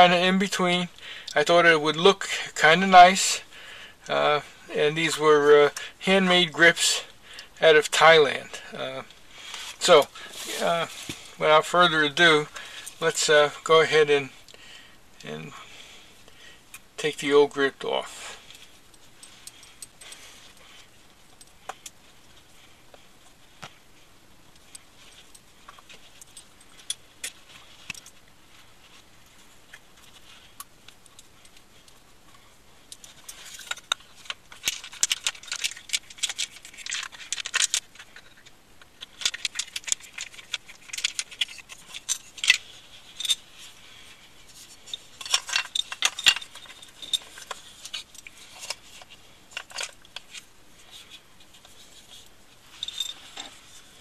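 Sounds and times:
handling clicks and rattles: 0:24.5 - 0:54.0.

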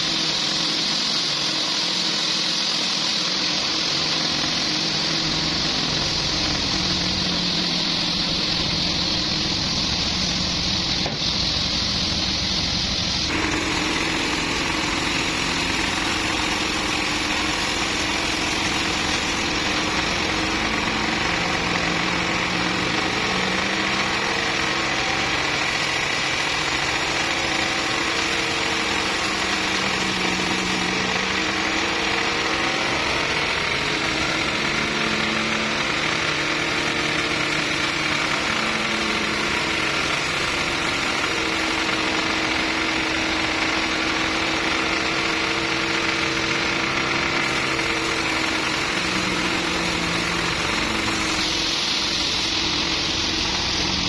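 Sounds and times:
band saw cutting timber: 0:00.0 - 0:54.0.

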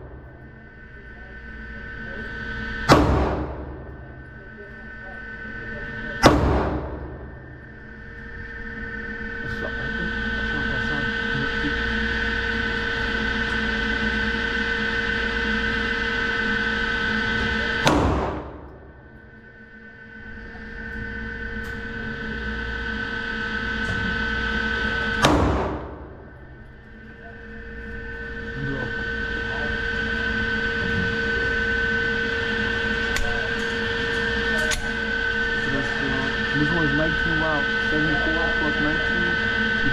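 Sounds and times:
steady hum with held tones: 0:00.0 - 0:39.9
pistol shots with echo: 0:02.9 - 0:03.6, 0:06.2 - 0:07.0, 0:17.8 - 0:18.5, 0:25.2 - 0:25.9.

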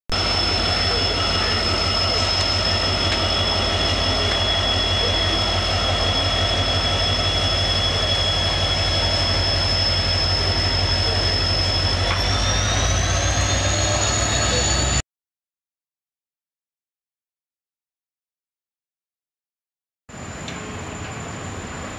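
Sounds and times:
locomotive engine rumble: 0:00.1 - 0:15.0
turbocharger whine: 0:00.1 - 0:15.0.

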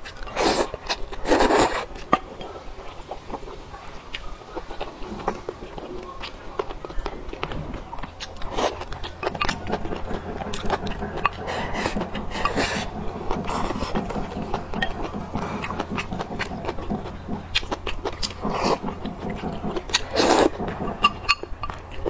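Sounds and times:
slurping noodles: 0:00.0 - 0:03.5, 0:08.2 - 0:22.0
wet chewing and lip smacks: 0:00.0 - 0:22.0.

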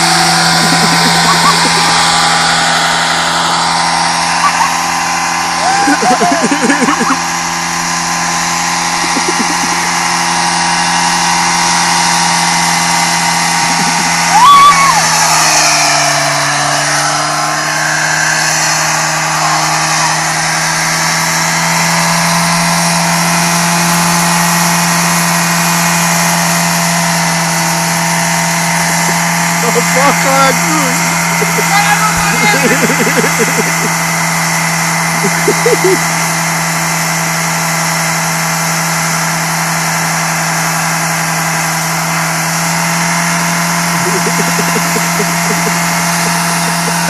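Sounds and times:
car engine at high revs: 0:00.0 - 0:47.0
tyres squealing on pavement: 0:14.1 - 0:21.0.

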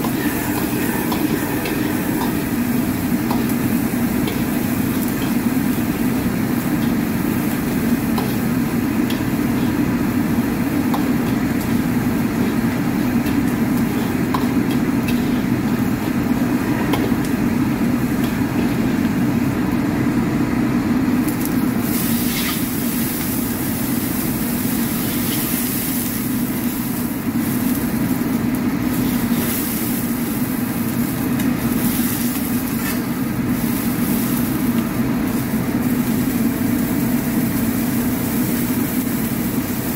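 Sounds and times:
gas burner roaring: 0:00.0 - 0:39.9.

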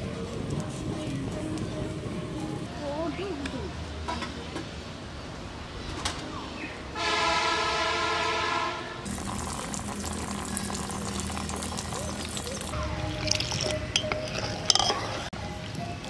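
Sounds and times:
horn chord: 0:07.0 - 0:09.1
water spraying from pipe: 0:09.0 - 0:15.3.

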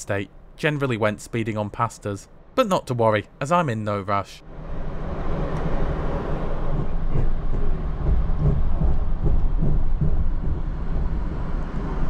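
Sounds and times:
train car deep rumble: 0:04.7 - 0:12.0
wheels knocking on rails: 0:06.6 - 0:12.0.

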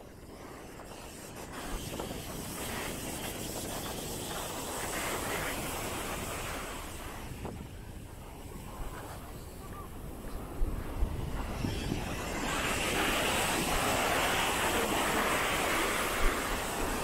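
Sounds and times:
wind buffeting microphone: 0:00.0 - 0:17.0
sea waves washing onto beach: 0:10.9 - 0:17.0.

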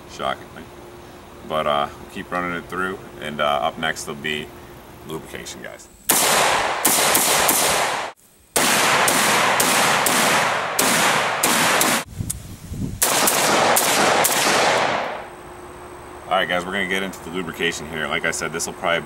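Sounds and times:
rifle shots with ringing echo: 0:06.1 - 0:12.1, 0:13.0 - 0:15.3.

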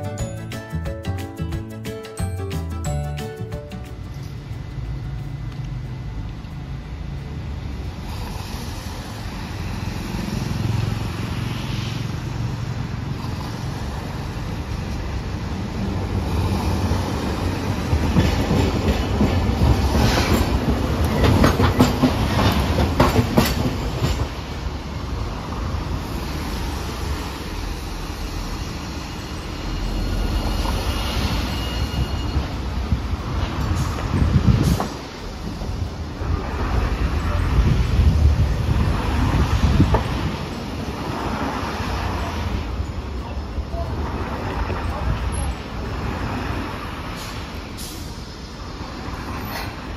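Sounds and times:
streetcar rumble: 0:00.0 - 0:49.9
streetcar wheels clacking over joints: 0:17.4 - 0:25.0
wheel squeal: 0:28.8 - 0:32.9.

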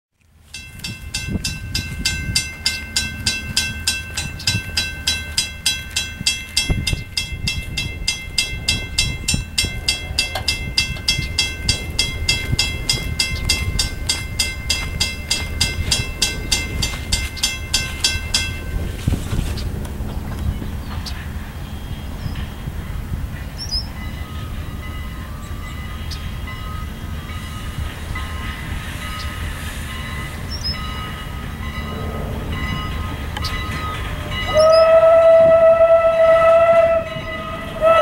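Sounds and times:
railroad crossing bell ringing: 0:00.4 - 0:38.0
low rumble: 0:01.0 - 0:29.2.

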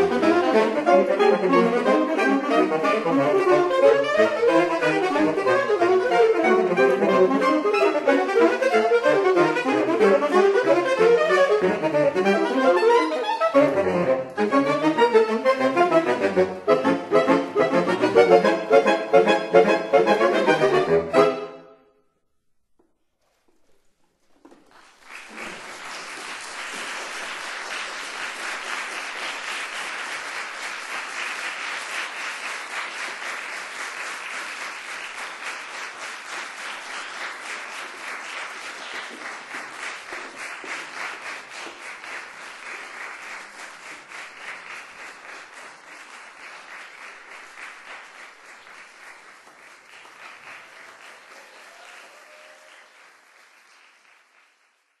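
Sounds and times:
music: 0:00.0 - 0:22.4
audience applauding: 0:23.6 - 0:55.0.

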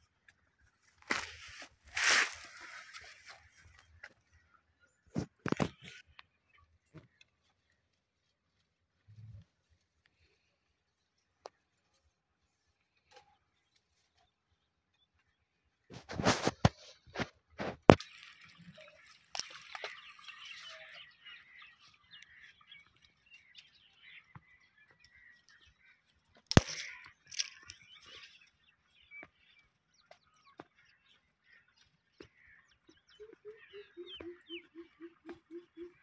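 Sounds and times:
sharp crack: 0:26.4 - 0:27.8
rustling and small clicks: 0:26.4 - 0:28.3.

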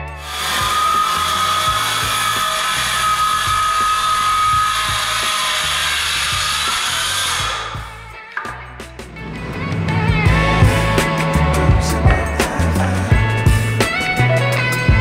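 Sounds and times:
circular saw cutting wood: 0:00.0 - 0:14.3
background music with a beat: 0:07.4 - 0:15.0.

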